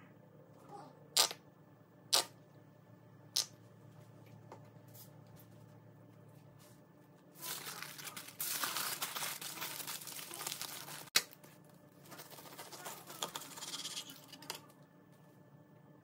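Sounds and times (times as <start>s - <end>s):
knife cutting through foil: 7.4s - 11.1s, 12.1s - 14.4s
aluminium foil crinkling: 7.4s - 14.7s.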